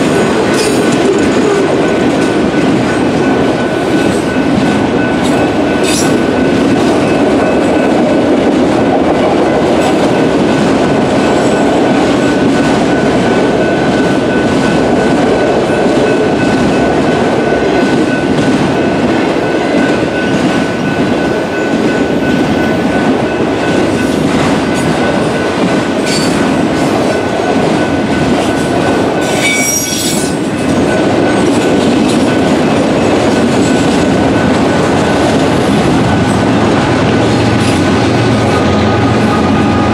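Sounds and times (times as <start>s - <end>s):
train wheels clattering over rails: 0.0s - 39.9s
distorted crossing bell ringing: 11.2s - 39.9s.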